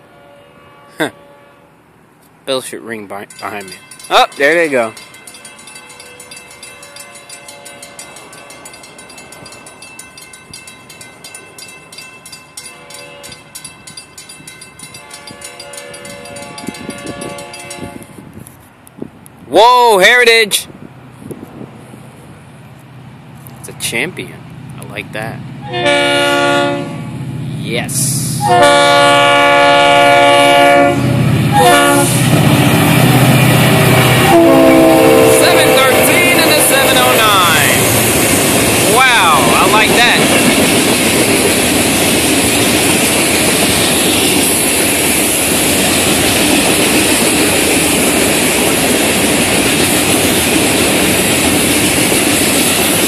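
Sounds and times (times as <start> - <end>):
distant locomotive horn blasts: 0.0 - 1.8, 6.0 - 8.8, 12.6 - 13.5, 15.0 - 18.3, 25.6 - 27.2, 28.3 - 32.3, 33.7 - 37.9
locomotive engine rumbling: 0.0 - 53.0
crossing warning bell ringing: 2.5 - 18.2, 28.4 - 51.4
train wheels clattering: 3.1 - 18.1, 35.5 - 53.0.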